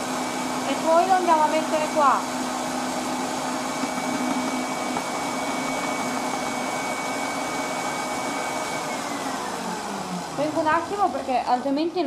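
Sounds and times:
stand mixer motor whisking: 0:00.0 - 0:12.0.

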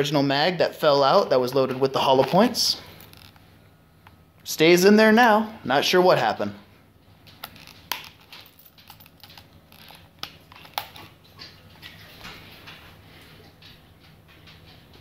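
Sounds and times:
leather and clothing rustling: 0:02.1 - 0:03.4, 0:07.3 - 0:11.2.

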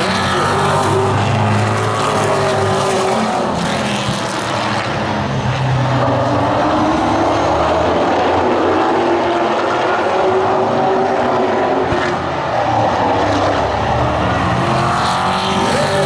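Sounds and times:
race car engines droning: 0:00.0 - 0:16.0.

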